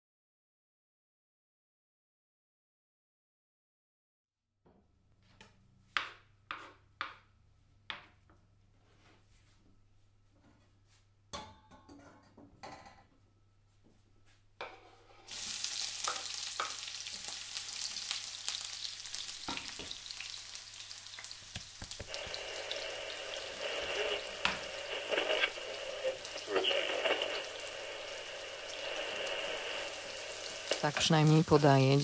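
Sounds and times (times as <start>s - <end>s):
dense crackling hiss: 21.2s - 32.0s.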